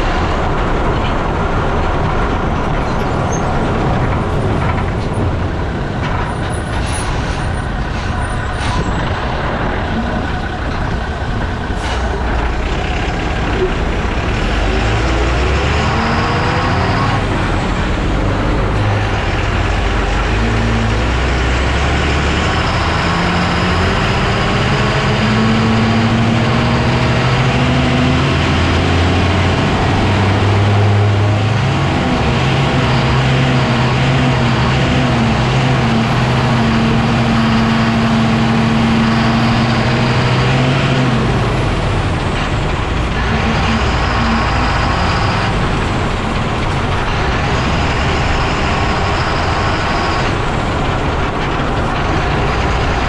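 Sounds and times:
lorry engine: 0.0 - 53.0
lorry road and running noise: 17.2 - 53.0.

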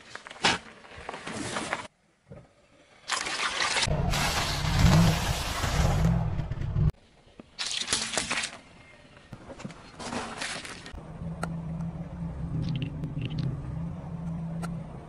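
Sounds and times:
car engine running low: 11.0 - 15.0.

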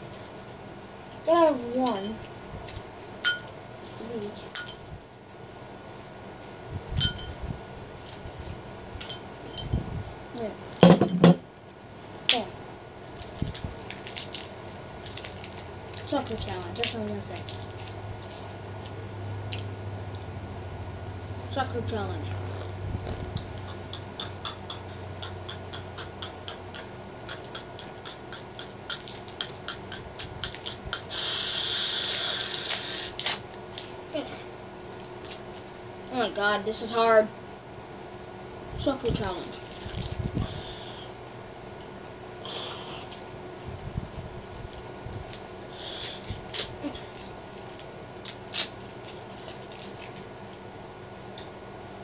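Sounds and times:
plastic wrapper crinkling: 13.0 - 19.0, 28.4 - 30.8, 32.1 - 35.7, 39.4 - 40.2, 44.5 - 50.3
wrapper snaps: 13.0 - 19.0, 32.1 - 35.7, 45.3 - 50.3
hard candies clinking together: 25.5 - 34.5.

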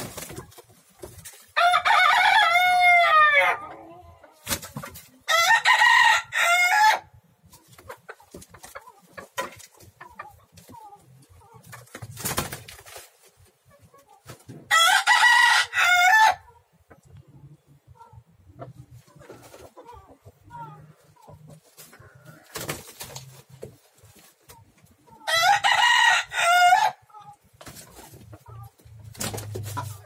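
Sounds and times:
birds scuffling and wing flaps: 0.0 - 1.6, 7.4 - 14.6, 21.5 - 25.0, 27.5 - 30.0
rooster crowing: 1.6 - 3.7, 5.3 - 7.1, 14.7 - 16.4, 25.3 - 27.0.

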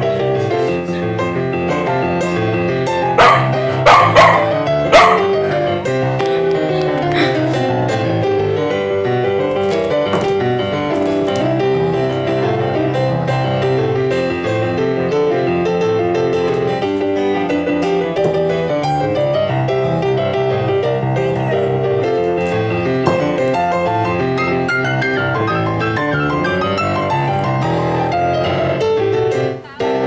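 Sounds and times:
piano music: 0.0 - 30.0.

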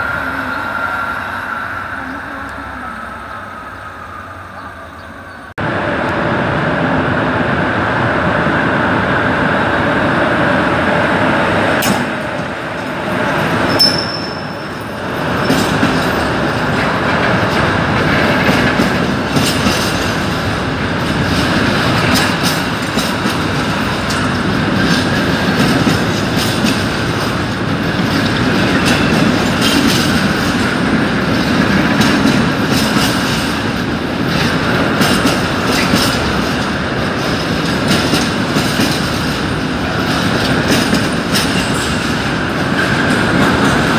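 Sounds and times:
train wheels rumbling on rails: 0.0 - 43.9
high wheel squeal: 13.5 - 15.7.

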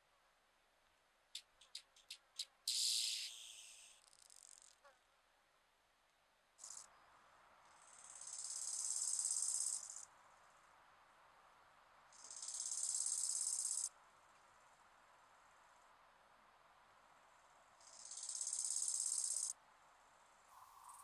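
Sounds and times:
grasshopper stridulating: 1.4 - 4.8, 6.6 - 6.9, 7.7 - 10.1, 12.1 - 13.9, 17.8 - 19.6.

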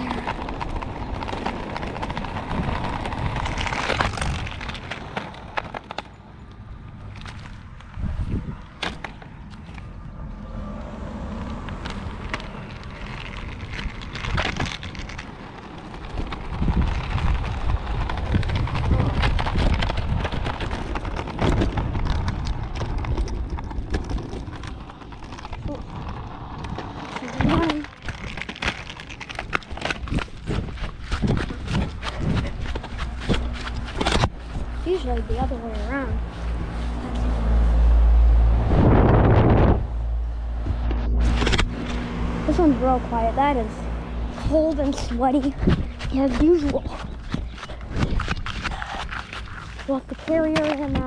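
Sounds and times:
footsteps on pavement: 0.0 - 10.2, 29.6 - 37.7, 40.5 - 51.0
wind rumbling on microphone: 0.0 - 51.0.

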